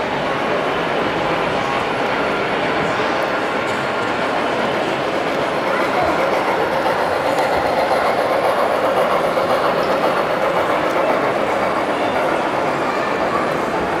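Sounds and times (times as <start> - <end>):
model train wheels clattering: 3.2 - 14.0.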